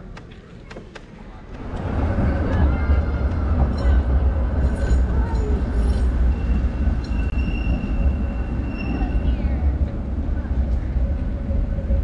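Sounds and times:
wind and road noise: 0:00.0 - 0:12.0
high steady squeal: 0:05.4 - 0:09.8.

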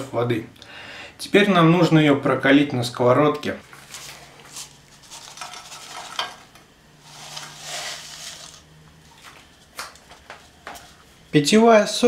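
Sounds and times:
powder pouring hiss: 0:07.0 - 0:08.8.

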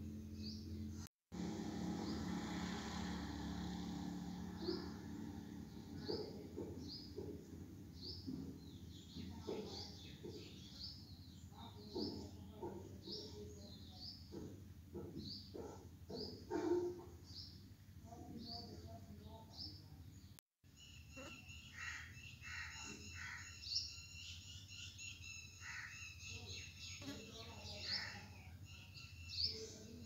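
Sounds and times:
small bird chirping: 0:17.2 - 0:30.0.

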